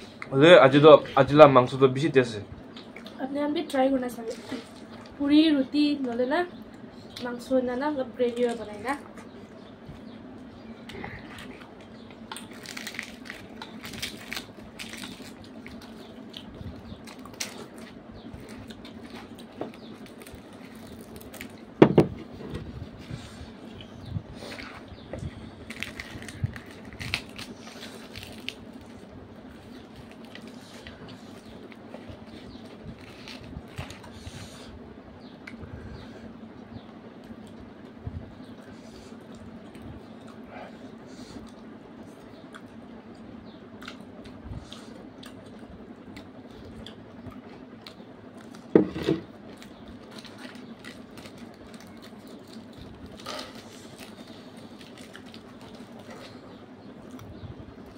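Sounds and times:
steady low hum: 0:00.0 - 0:57.9
fingers tearing fried bread: 0:11.5 - 0:21.6, 0:25.7 - 0:34.2
chewing and mouth smacks: 0:41.4 - 0:43.2, 0:43.8 - 0:48.7.

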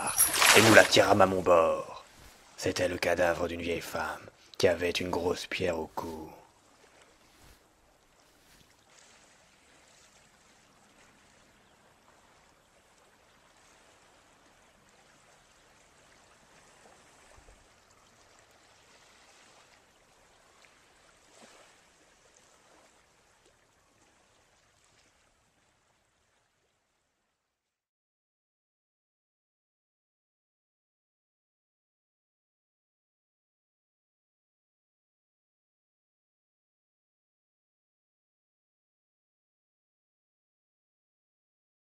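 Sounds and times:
softly running river water: 0:00.0 - 0:27.9.

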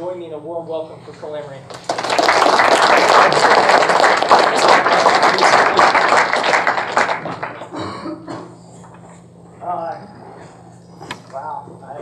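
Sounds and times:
audience applauding: 0:01.7 - 0:07.7.

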